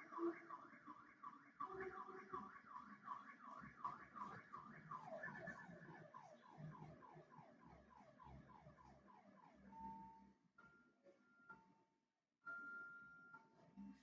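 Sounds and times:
faint electronic alarm chirps: 0.0 - 14.0.

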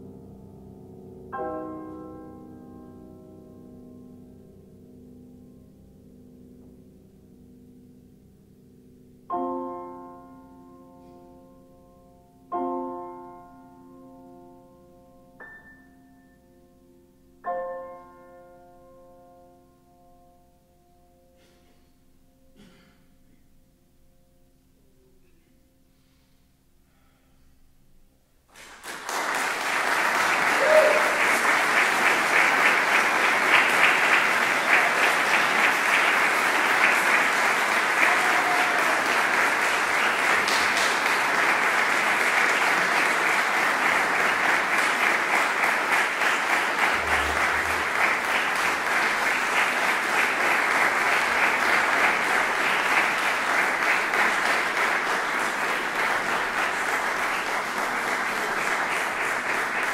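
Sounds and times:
audience applauding: 28.5 - 59.9.

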